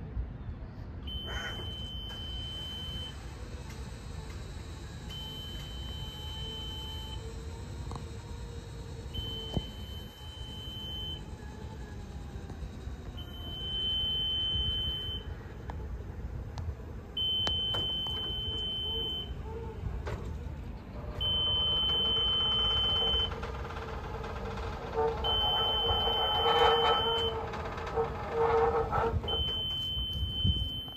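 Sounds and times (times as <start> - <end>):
high-pitched warning beeps: 1.1 - 15.4, 17.1 - 19.4, 21.2 - 23.4, 25.2 - 28.5, 29.2 - 30.9.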